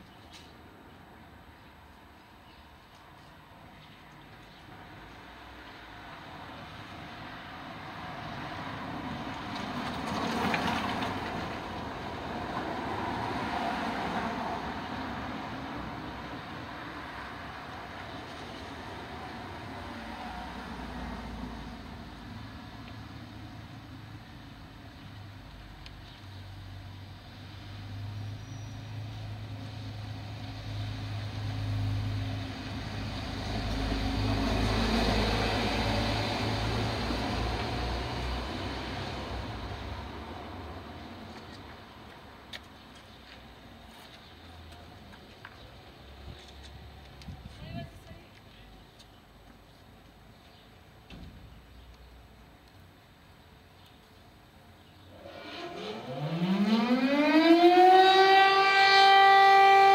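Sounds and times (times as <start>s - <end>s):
vehicle passing by: 5.6s - 24.2s, 26.4s - 42.0s, 55.1s - 59.9s
vehicle driving past: 27.4s - 41.2s, 55.1s - 59.9s.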